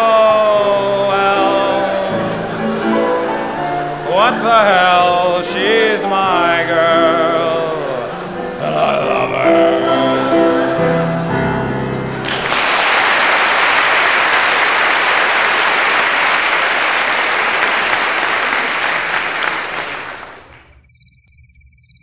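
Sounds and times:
piano chords: 0:00.0 - 0:20.7
audience applauding: 0:12.1 - 0:20.7.

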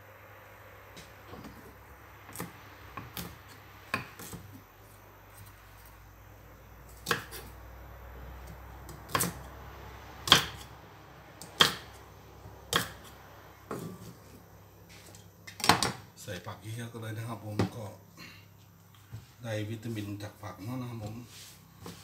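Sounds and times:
knife chopping on wooden board: 0:02.3 - 0:04.5, 0:06.9 - 0:07.5, 0:08.9 - 0:09.5, 0:10.2 - 0:10.7, 0:11.4 - 0:12.0, 0:12.7 - 0:13.1, 0:13.7 - 0:14.2.

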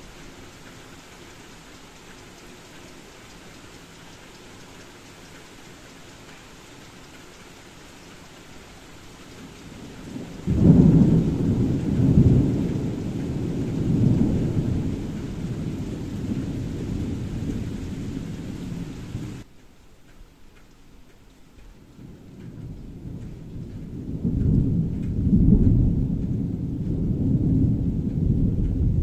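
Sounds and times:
heavy rain: 0:00.0 - 0:29.0
thunder clap and rumble: 0:07.1 - 0:19.4, 0:22.0 - 0:29.0.

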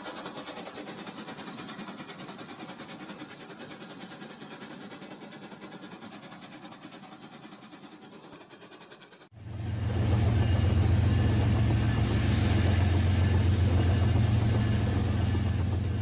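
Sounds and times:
toy train motor whirring: 0:00.0 - 0:09.3
wheels clicking over track: 0:00.0 - 0:09.3.

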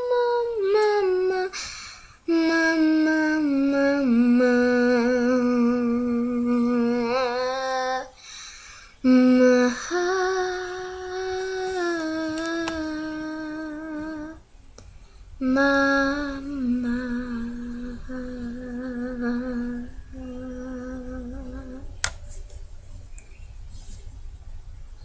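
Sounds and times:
girl humming: 0:00.0 - 0:01.6, 0:02.2 - 0:08.2, 0:09.0 - 0:14.4, 0:15.4 - 0:22.0
sharp click: 0:22.0 - 0:23.5.

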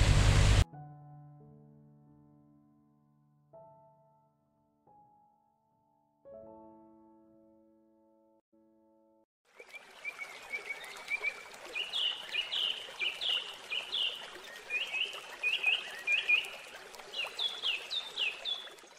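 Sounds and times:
songbird chirping: 0:09.6 - 0:18.9.

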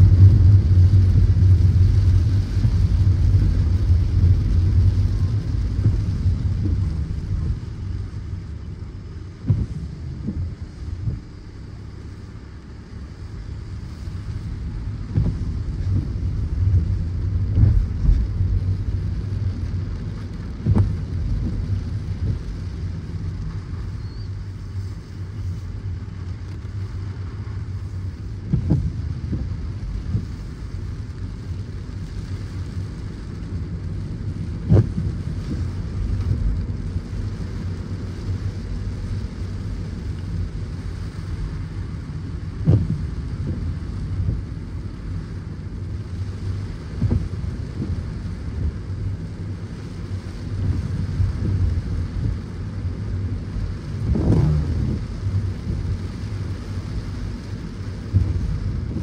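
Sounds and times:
short low thumps: 0:00.0 - 0:11.7, 0:14.0 - 0:19.8, 0:20.5 - 0:23.0, 0:28.4 - 0:30.5, 0:42.5 - 0:44.6, 0:46.8 - 0:48.8, 0:50.5 - 0:56.6, 0:58.0 - 0:59.0
car road rumble: 0:00.0 - 0:59.0
rain hiss: 0:00.0 - 0:59.0.

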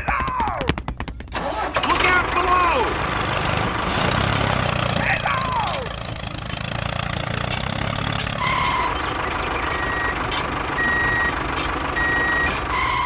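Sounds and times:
vehicle engine rumbling: 0:00.0 - 0:13.0
reversing alarm beeps: 0:08.4 - 0:10.2, 0:10.8 - 0:11.4, 0:12.0 - 0:13.0.

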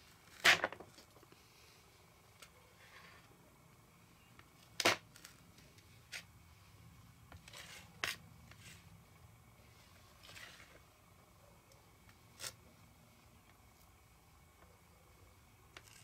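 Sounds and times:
knife scraping: 0:07.4 - 0:08.9.

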